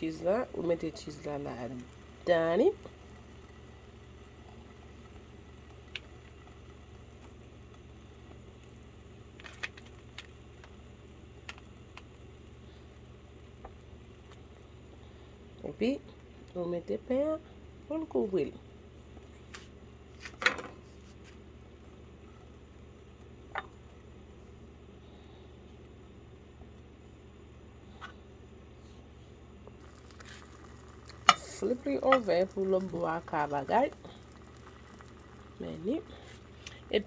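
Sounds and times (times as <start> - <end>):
food frying in a pan: 0.0 - 17.2, 29.7 - 37.0
steady low hum: 0.0 - 37.0.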